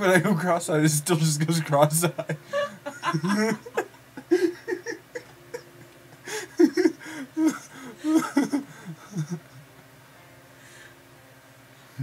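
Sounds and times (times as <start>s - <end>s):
people laughing: 1.5s - 9.6s.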